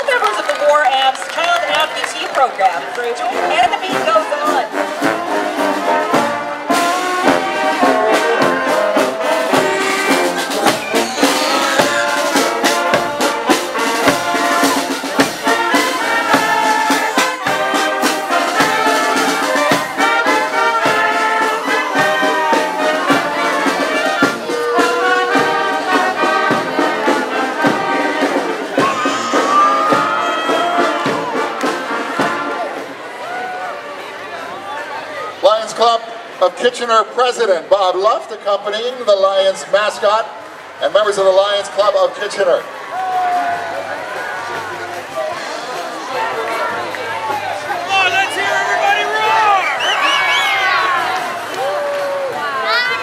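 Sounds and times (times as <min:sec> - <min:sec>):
marching band playing: 0:00.0 - 0:53.0
brass melody: 0:00.2 - 0:33.2, 0:43.6 - 0:51.8
steady drum beat: 0:03.6 - 0:33.0.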